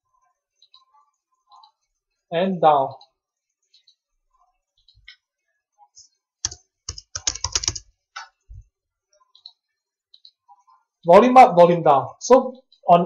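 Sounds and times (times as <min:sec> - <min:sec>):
typing on computer keyboard: 0:06.4 - 0:08.3.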